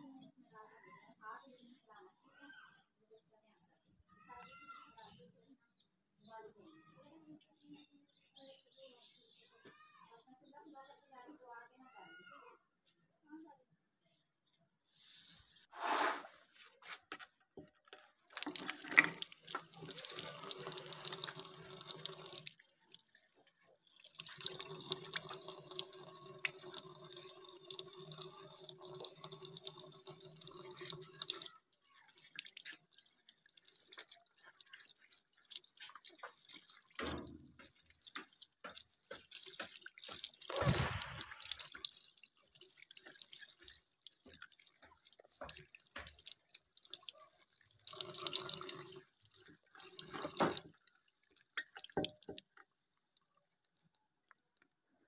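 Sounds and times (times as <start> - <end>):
tap water running into basin: 17.9 - 54.4
water dripping and splashing: 18.0 - 54.4.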